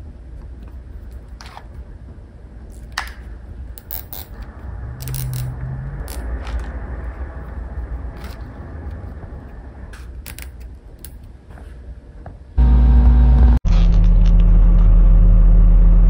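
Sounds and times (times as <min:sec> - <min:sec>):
low rumble: 0:03.3 - 0:10.5, 0:12.6 - 0:16.0
zip tie ratcheting rattles: 0:03.8 - 0:06.3.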